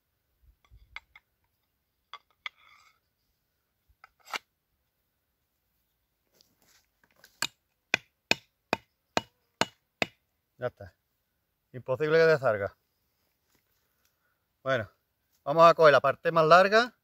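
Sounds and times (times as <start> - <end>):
hand axe chopping wood: 7.3 - 10.2.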